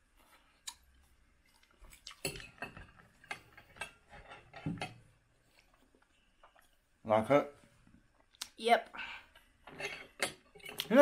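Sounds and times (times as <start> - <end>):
metal fork scraping a plate: 9.7 - 10.8.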